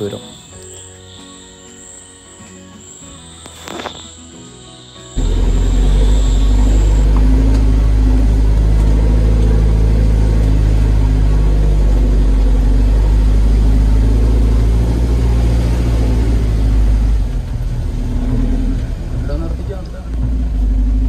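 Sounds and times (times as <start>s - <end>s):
jeep engine droning: 4.8s - 21.0s.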